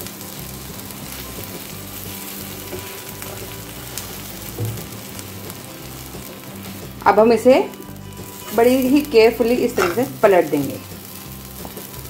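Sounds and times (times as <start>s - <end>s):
bread sizzling in butter: 0.0s - 12.0s.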